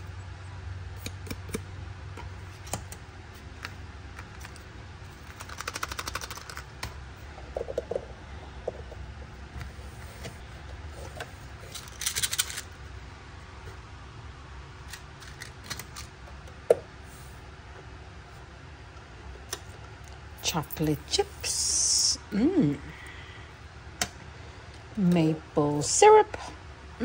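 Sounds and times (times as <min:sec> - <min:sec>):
plastic toy pieces clicking: 0:05.3 - 0:06.7, 0:11.7 - 0:12.7, 0:14.9 - 0:16.1.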